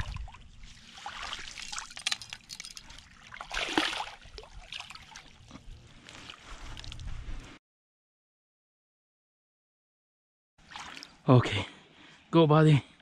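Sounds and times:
river water splashing: 0.0 - 5.5, 10.6 - 11.2.

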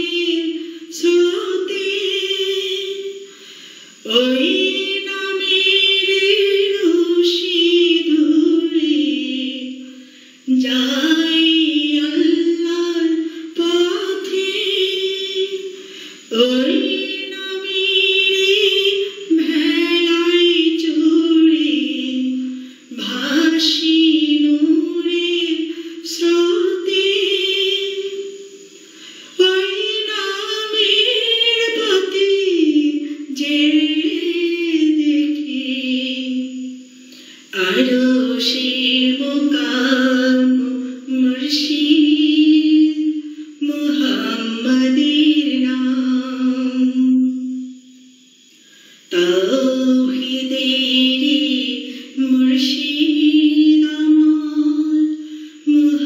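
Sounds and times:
woman singing devotional song: 0.0 - 56.0.

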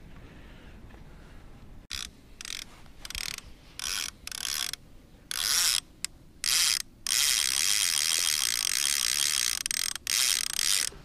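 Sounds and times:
fishing reel whirring and clicking: 1.9 - 5.8, 6.4 - 10.9.

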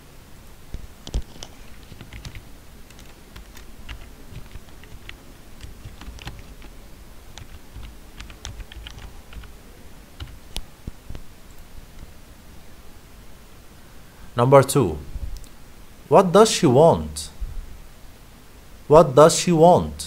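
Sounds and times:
computer keyboard typing: 1.1 - 9.5, 10.2 - 10.5.

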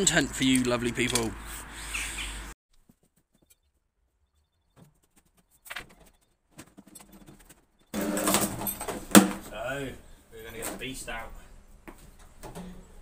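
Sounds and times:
footsteps on brick paving: 11.8 - 12.2.

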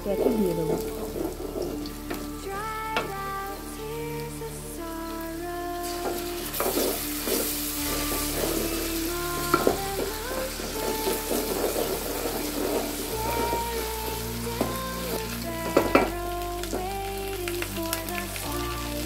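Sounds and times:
onions sizzling in hot oil: 5.8 - 19.0.

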